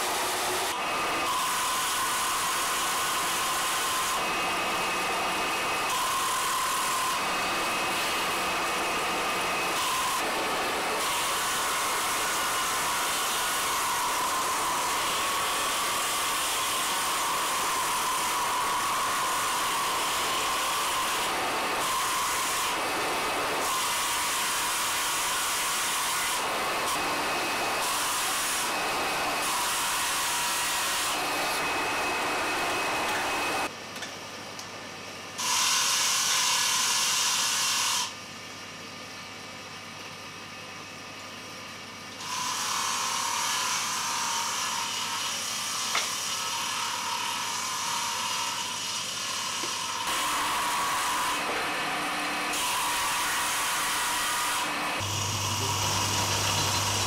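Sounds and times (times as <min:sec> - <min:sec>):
lathe motor humming: 0:54.6 - 0:57.0.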